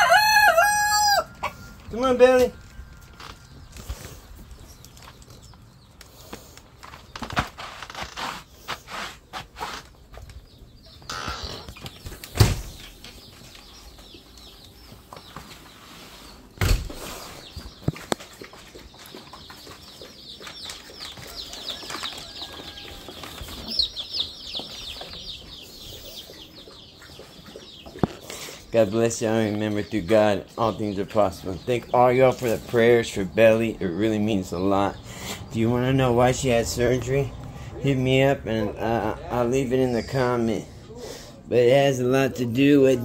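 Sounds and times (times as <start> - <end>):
chicks peeping: 0.0 - 43.0
knocks and movement noise: 1.7 - 28.6.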